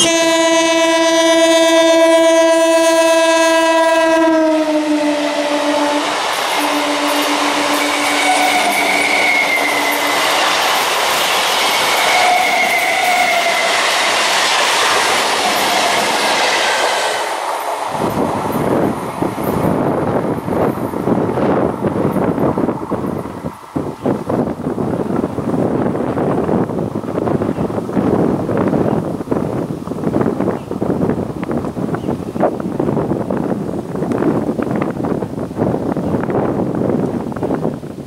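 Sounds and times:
train horn chord: 0.0 - 10.6
wind buffeting microphone: 0.0 - 38.0
high wavering whine: 5.1 - 19.0
train wheels clattering over rail joints: 6.3 - 22.5.

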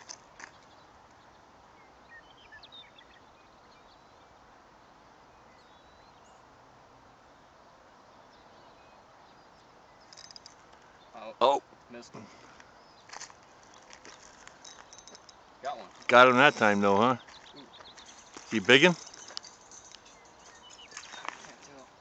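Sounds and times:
faint outdoor hiss: 0.0 - 22.0
high chirps: 13.7 - 21.6.

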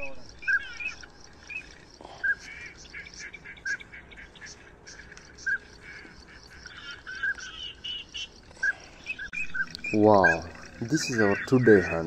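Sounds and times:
birds chirping: 0.0 - 12.0.

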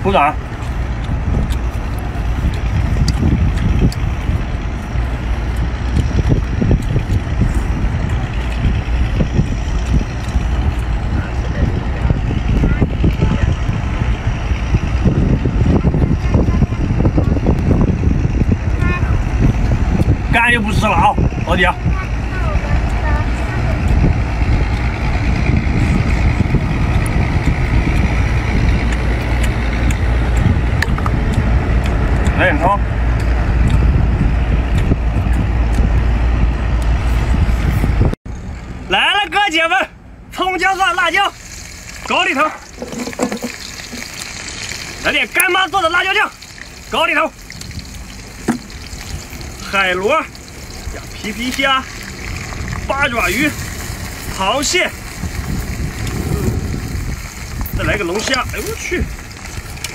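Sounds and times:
engine idling: 0.0 - 37.1
steady low rumble: 0.0 - 39.1, 39.9 - 59.9
man chewing: 0.5 - 11.0, 26.7 - 32.4, 33.0 - 34.0, 34.6 - 36.2, 42.6 - 45.0, 46.3 - 49.6, 55.0 - 57.8.

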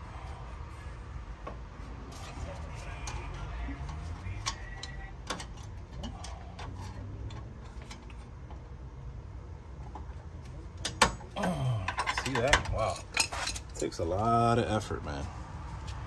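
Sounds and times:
screwdriver metallic clicks and scrapes: 2.1 - 8.3.

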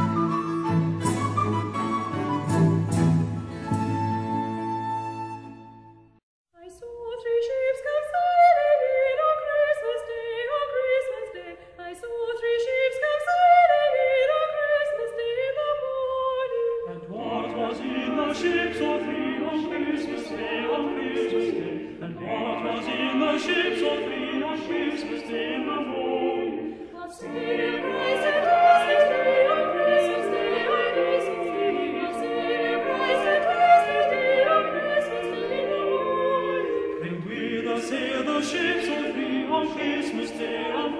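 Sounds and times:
classical choral music: 0.0 - 40.9.

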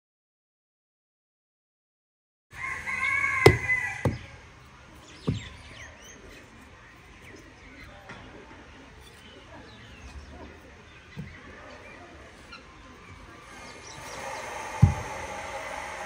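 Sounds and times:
bricks knocking on dirt ground: 3.4 - 4.4, 5.2 - 5.8, 11.1 - 11.6, 14.6 - 15.4
faint bird chirps: 4.1 - 15.3.

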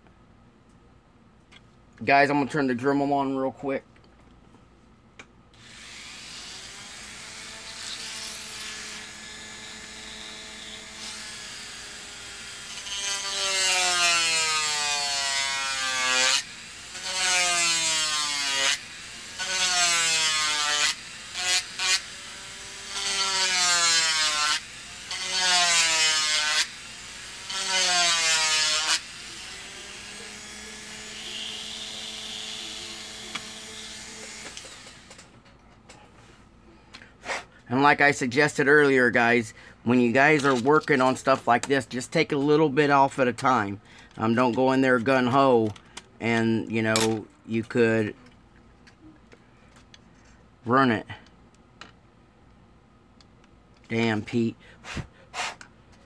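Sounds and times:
rotary tool whining: 20.5 - 35.3.

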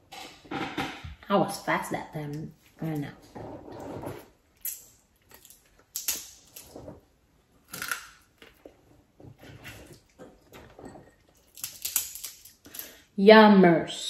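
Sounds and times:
wet chewing and smacking: 4.4 - 13.0
crab shell cracking: 4.6 - 6.7, 7.6 - 8.7, 11.4 - 13.0.

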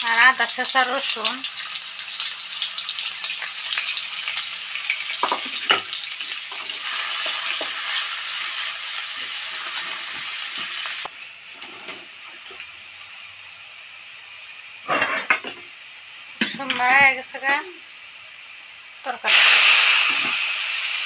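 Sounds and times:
onion sizzling in hot oil: 0.0 - 21.0
wooden spatula scraping a pan: 11.6 - 12.2.

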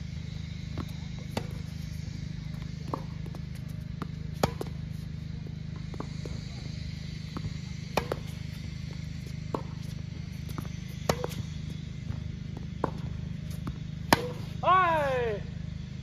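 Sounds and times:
tennis ball bouncing on court: 0.7 - 14.6
tennis ball hit by racket: 0.8 - 1.7, 4.0 - 4.9, 7.3 - 14.6.

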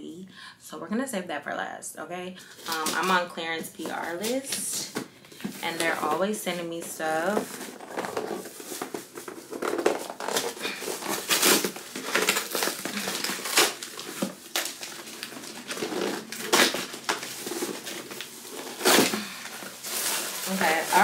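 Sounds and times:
packaging crinkling and rustling: 2.5 - 21.0
packaging crunches: 6.9 - 21.0.

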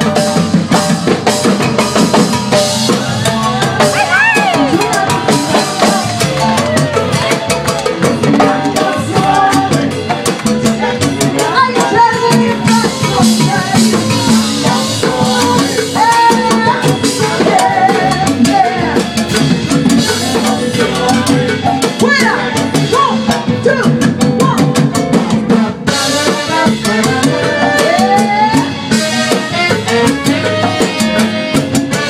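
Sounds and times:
hand drums and timbales: 0.0 - 32.0
upright bass: 0.0 - 32.0
horns playing melodic lines: 25.9 - 32.0.

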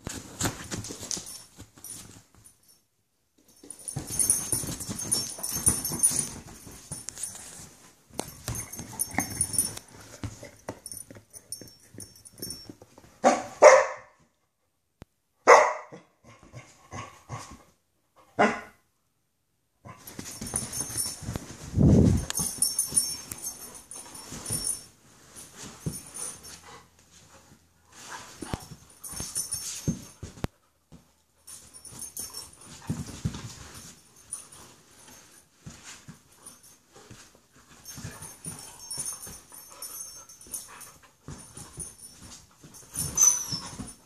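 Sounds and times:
dogs scuffling and rustling: 0.0 - 2.8, 3.4 - 13.2, 19.9 - 44.0
dog play barks: 13.2 - 14.2, 15.4 - 16.1, 18.4 - 18.8.

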